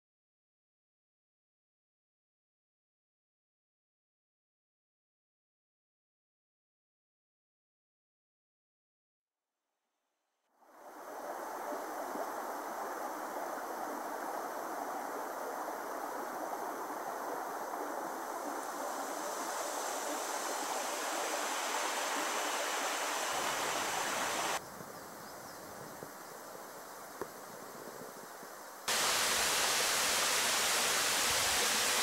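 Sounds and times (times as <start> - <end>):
water rushing over rocks: 10.8 - 24.6, 28.9 - 32.0.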